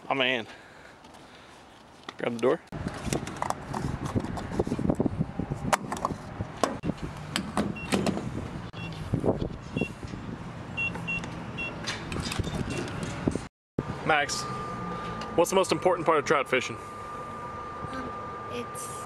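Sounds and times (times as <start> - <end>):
steady low hum: 13.3 - 19.0.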